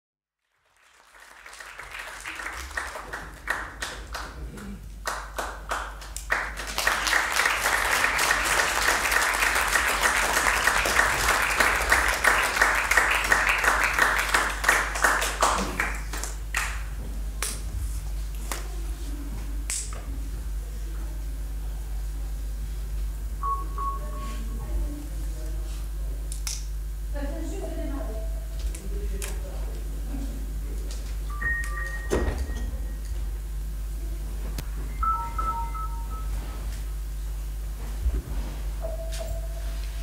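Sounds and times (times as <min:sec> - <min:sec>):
audience applause: 0:00.4 - 0:17.0.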